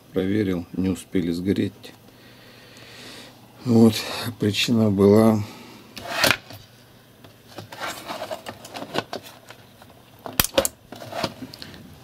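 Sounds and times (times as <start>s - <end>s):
handling clicks and rustles: 6.0s - 12.0s.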